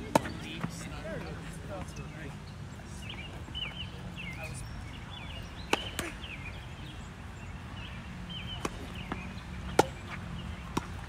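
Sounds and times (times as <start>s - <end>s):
tennis ball struck by rackets: 0.0s - 0.5s, 5.7s - 6.2s, 8.5s - 11.0s
tennis ball bouncing on hard court: 0.0s - 0.8s, 8.5s - 11.0s
birds chirping: 0.0s - 11.0s.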